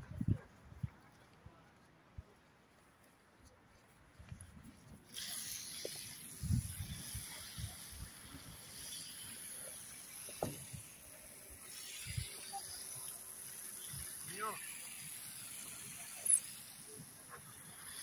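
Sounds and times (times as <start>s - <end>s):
outdoor hiss: 5.1s - 18.0s.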